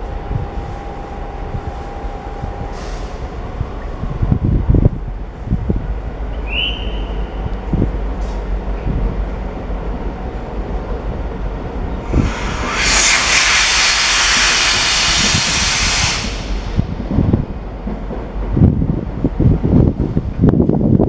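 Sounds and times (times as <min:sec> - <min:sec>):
train low rumble: 0:00.0 - 0:21.0
compressed air hissing: 0:12.0 - 0:17.0.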